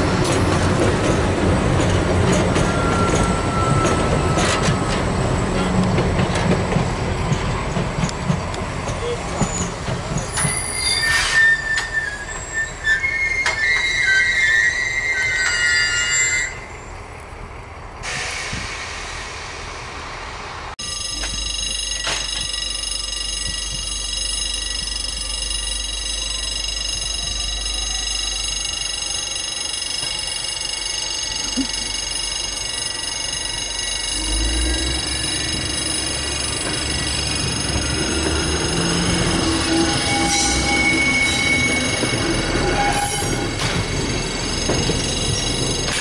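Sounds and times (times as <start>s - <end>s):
train wheels squealing: 2.2s - 5.7s, 8.9s - 17.1s, 25.9s - 46.0s.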